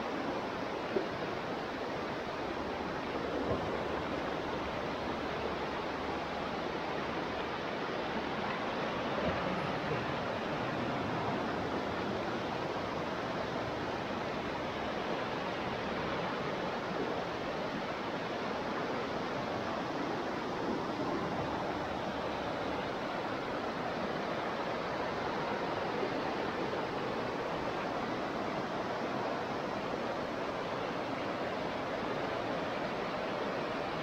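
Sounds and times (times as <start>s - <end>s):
floodwater rushing: 0.0s - 34.0s.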